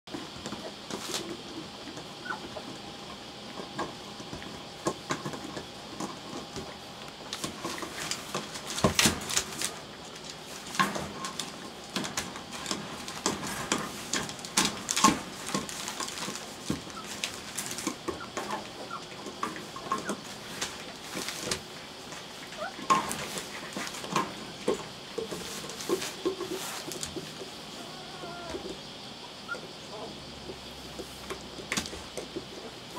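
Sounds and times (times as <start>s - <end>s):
puppies suckling: 0.5s - 8.5s, 25.2s - 28.8s.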